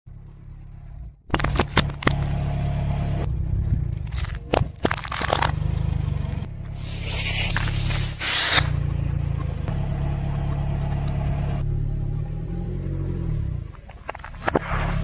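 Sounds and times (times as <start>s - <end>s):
car engine idling: 0.1s - 14.9s
tyre crushing objects: 4.0s - 5.6s.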